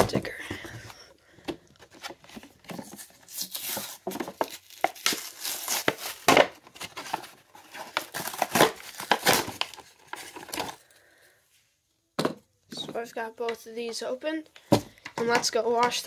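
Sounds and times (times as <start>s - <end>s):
plastic crinkling: 1.8s - 10.9s
cardboard ripping: 1.9s - 10.7s.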